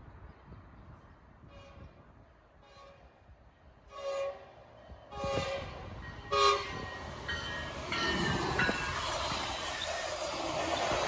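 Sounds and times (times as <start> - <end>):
train rumbling on rails: 0.0 - 11.0
train horn blasts: 3.9 - 4.5, 5.1 - 6.8.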